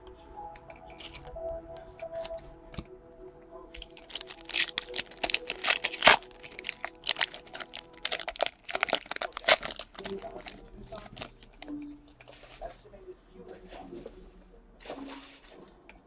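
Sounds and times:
wrapper tearing and crinkling: 0:00.9 - 0:01.3, 0:03.8 - 0:11.7.

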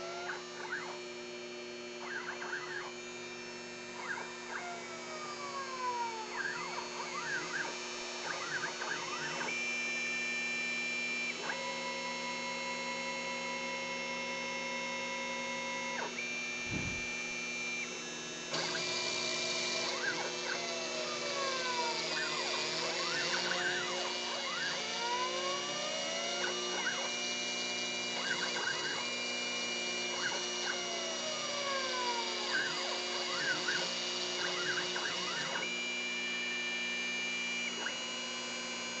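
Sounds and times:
stepper motors whining: 0:04.0 - 0:09.6, 0:16.3 - 0:17.7
steady hum: 0:16.5 - 0:17.5.

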